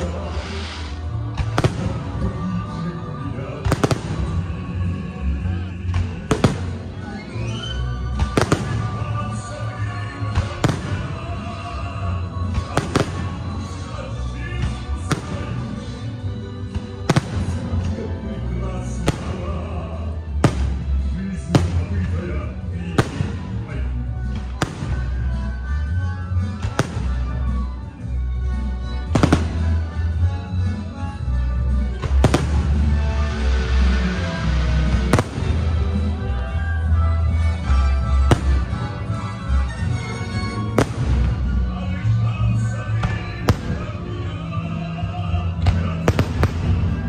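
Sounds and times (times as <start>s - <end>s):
firework bangs: 0.0s - 2.2s, 3.6s - 4.4s, 6.0s - 9.1s, 10.3s - 11.2s, 12.6s - 13.6s, 16.7s - 18.0s, 20.4s - 20.9s, 24.3s - 25.4s, 26.5s - 27.4s, 29.1s - 29.9s, 32.0s - 36.2s, 38.1s - 39.3s, 40.7s - 41.7s, 43.0s - 44.3s, 45.6s - 47.0s
music with sustained tones: 0.0s - 47.0s.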